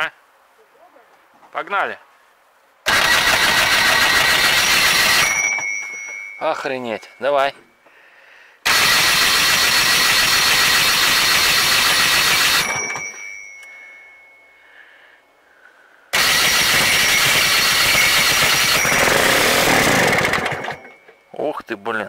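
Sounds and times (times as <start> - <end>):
starter cranking diesel engine: 2.9 - 5.4, 16.2 - 20.9
starter whine: 2.9 - 6.4, 16.2 - 21.2.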